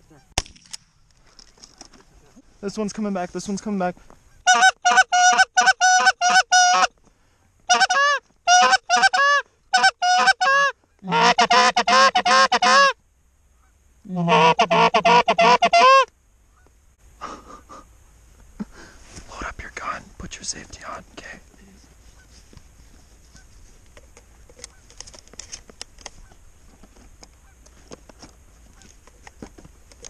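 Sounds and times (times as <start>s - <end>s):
goose call honks and clucks: 4.4s - 6.9s, 7.7s - 13.0s, 14.1s - 16.7s.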